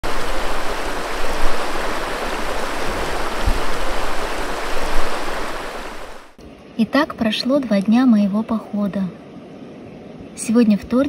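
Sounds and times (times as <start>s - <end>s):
stream water rushing: 0.0s - 6.4s.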